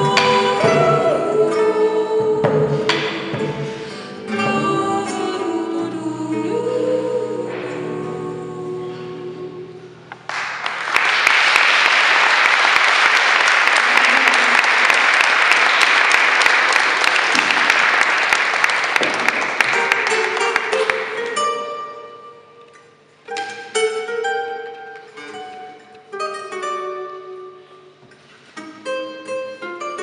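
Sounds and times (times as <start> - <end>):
audience applause: 10.3 - 21.2.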